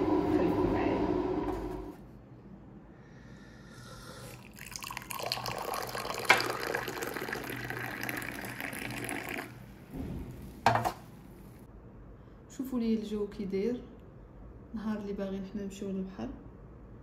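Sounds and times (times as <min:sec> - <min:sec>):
tea pouring into a glass: 0:04.1 - 0:09.7.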